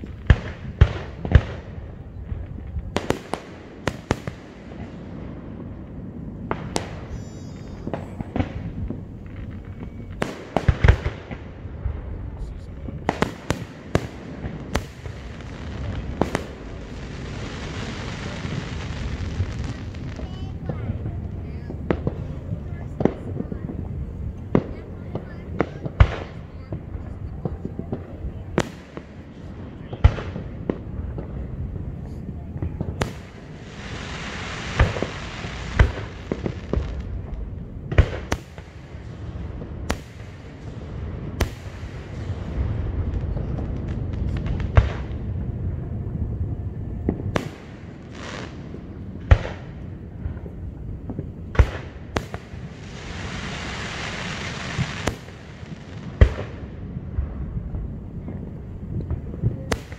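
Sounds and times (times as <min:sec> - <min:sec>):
fireworks bursting bangs: 0:00.0 - 0:59.9
steady hiss: 0:03.0 - 0:20.6, 0:33.0 - 0:37.6, 0:47.3 - 0:57.1.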